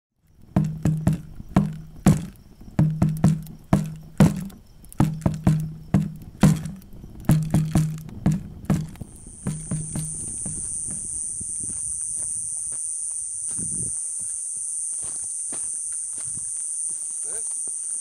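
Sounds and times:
low-pitched drum hits: 0.5 - 11.7.

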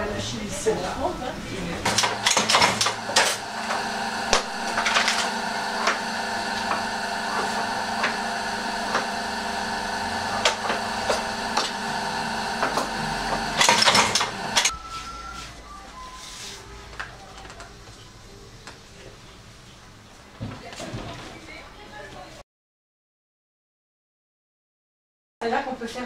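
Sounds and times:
press mechanical hum: 1.4 - 16.1.

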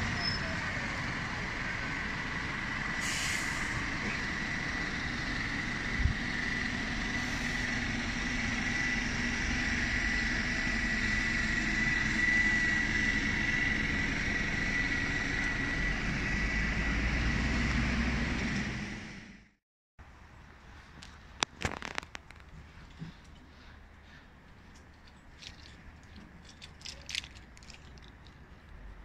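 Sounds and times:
bus moving off: 0.0 - 19.6
road traffic noise: 0.0 - 29.0
short hiss: 3.0 - 3.8.

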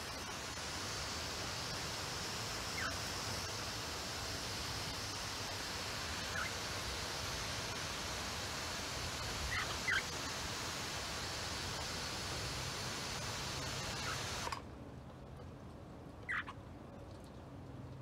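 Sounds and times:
falling water hiss: 0.0 - 14.6
cockatiels chirping: 16.3 - 16.5.

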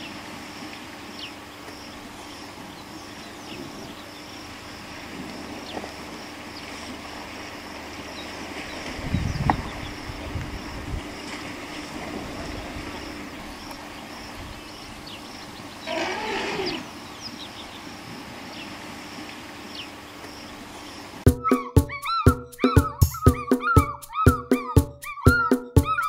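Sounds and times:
elephant call: 14.8 - 17.4, 21.3 - 26.0
faint bird chirps: 19.6 - 26.0
music: 21.3 - 26.0.

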